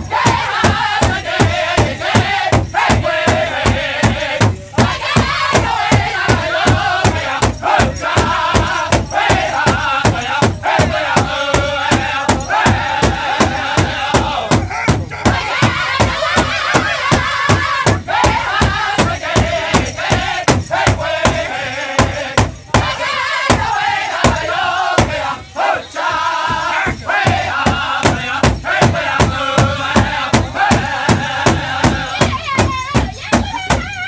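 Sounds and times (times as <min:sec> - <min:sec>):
large drum steady beat: 0:00.0 - 0:34.0
men singing in high voices: 0:00.0 - 0:34.0.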